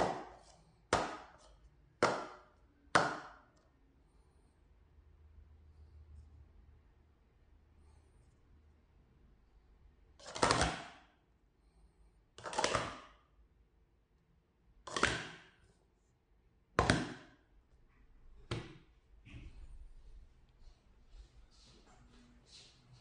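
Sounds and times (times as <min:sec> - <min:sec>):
plastic cups clattering together: 0:10.2 - 0:11.0, 0:12.4 - 0:13.2.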